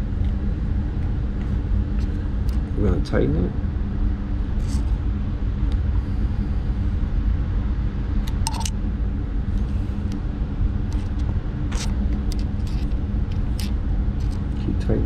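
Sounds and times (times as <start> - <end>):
low background rumble and hum: 0.0 - 15.0
small parts clicking: 8.2 - 8.8, 10.9 - 14.6.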